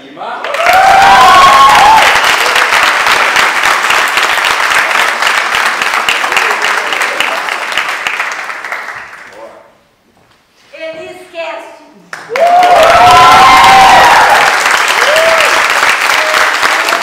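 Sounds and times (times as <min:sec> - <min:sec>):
audience applauding: 0:00.4 - 0:09.5, 0:12.1 - 0:17.0
voices cheering: 0:00.5 - 0:02.6, 0:12.3 - 0:17.0.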